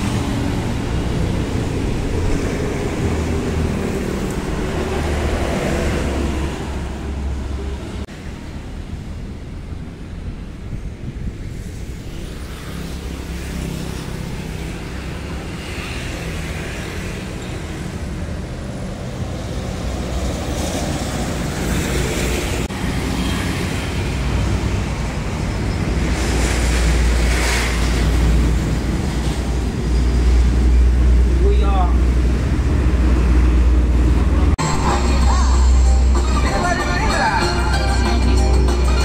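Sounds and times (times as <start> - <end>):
road traffic rumble: 0.0 - 39.0
vehicles passing: 0.0 - 39.0.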